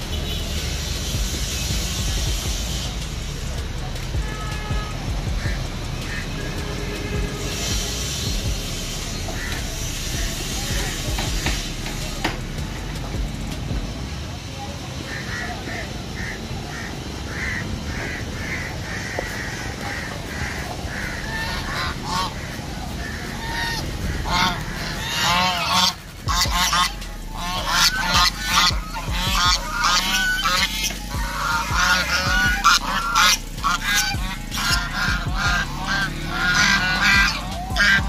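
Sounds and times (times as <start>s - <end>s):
geese honking: 0.0s - 38.0s.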